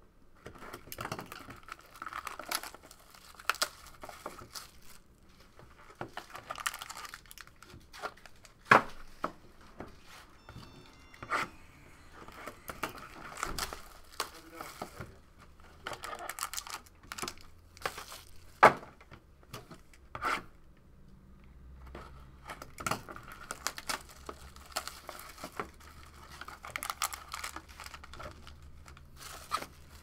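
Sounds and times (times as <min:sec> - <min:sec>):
wrapping and cardboard tearing: 0:00.6 - 0:09.2, 0:11.5 - 0:18.9, 0:23.1 - 0:30.0.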